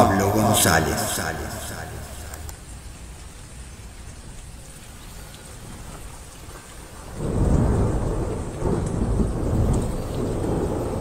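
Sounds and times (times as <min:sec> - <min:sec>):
thunder rumbling: 0:00.0 - 0:02.6, 0:07.0 - 0:11.0
rain falling: 0:00.0 - 0:11.0.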